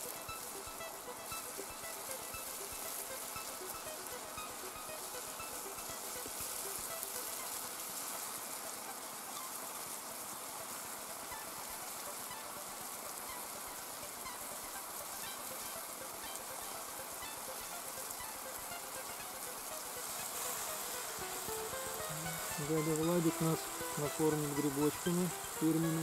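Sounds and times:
steady rain on a lake: 0.0 - 26.0.

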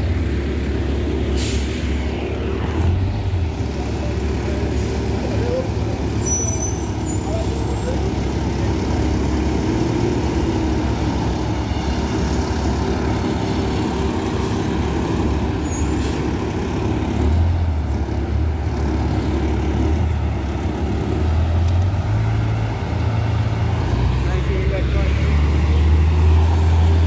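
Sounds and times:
bus diesel engine rumbling: 0.0 - 27.0.

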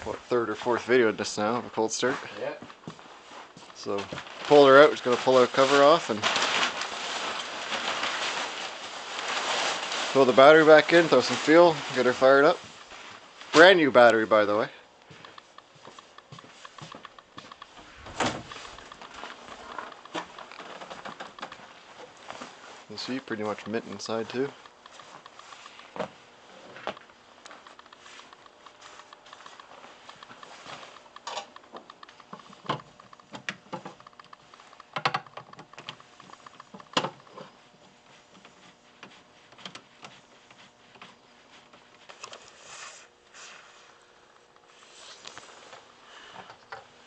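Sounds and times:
plastic hood scraping: 3.8 - 12.6.

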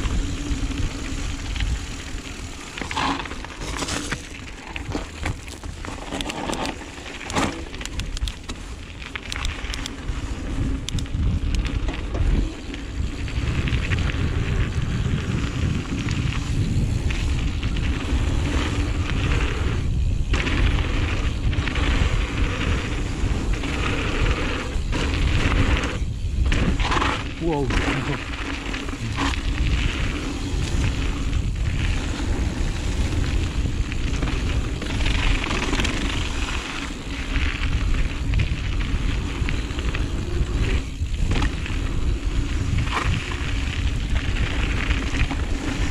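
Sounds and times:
wind buffeting microphone: 0.0 - 6.3, 7.8 - 45.9
tyre rumble on dirt: 0.0 - 7.8
bike clicks and rattles: 0.0 - 45.9.

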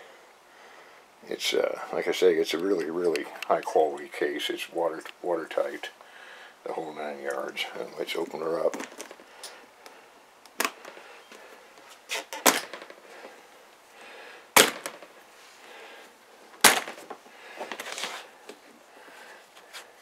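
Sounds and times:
short rustle: 17.5 - 20.0.

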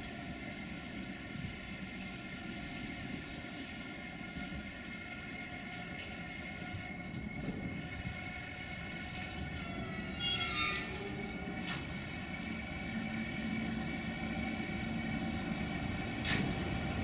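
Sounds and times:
locomotive whine: 0.0 - 17.0
wheels rumbling on track: 0.0 - 17.0
wheels squealing: 6.3 - 8.0, 9.3 - 11.7.

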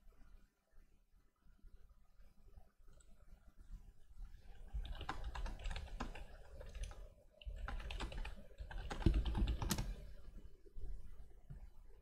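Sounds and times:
typing on computer keyboard: 4.7 - 10.1.

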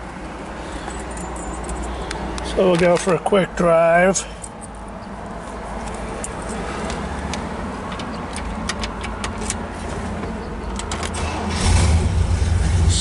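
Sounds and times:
car engine starting: 5.9 - 13.0.

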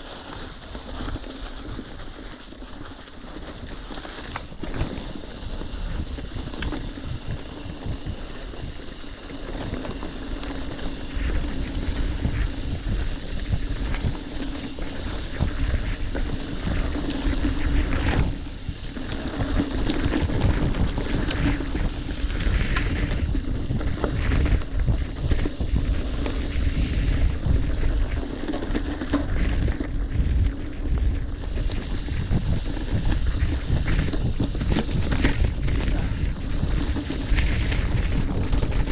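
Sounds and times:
bike rattling and knocking: 0.0 - 38.9
bike tyres rumbling on dirt: 0.0 - 38.9
wind noise on microphone: 0.0 - 38.9.

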